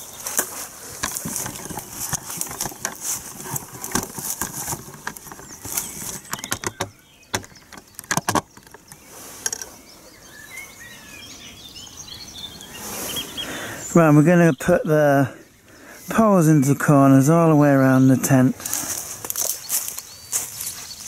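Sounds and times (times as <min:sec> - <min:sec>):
tent fabric rustling: 0:00.0 - 0:06.8
tent poles clicking and knocking: 0:00.0 - 0:09.8, 0:18.3 - 0:20.8
birds chirping: 0:00.0 - 0:21.0.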